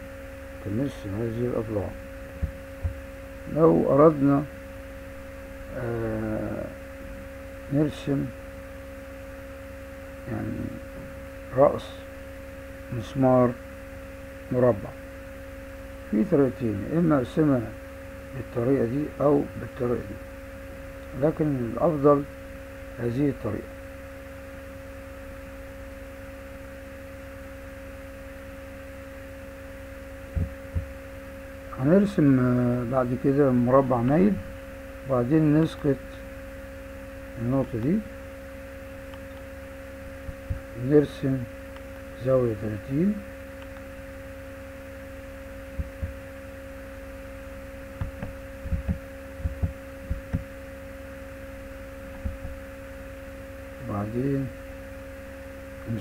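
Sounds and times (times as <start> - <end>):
low electrical hum: 0.0 - 56.0
two constant electrical tones: 0.0 - 56.0
keyboard and mouse thumps: 30.3 - 30.9, 40.3 - 40.7, 45.8 - 46.2, 48.0 - 50.5, 52.1 - 52.6.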